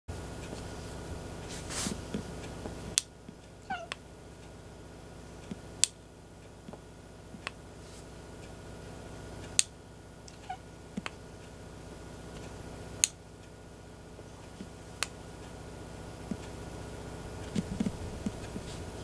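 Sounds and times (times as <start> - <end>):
cat meowing: 3.6 - 4.0, 10.3 - 10.7
sharp clicks: 5.4 - 7.6, 9.4 - 11.6.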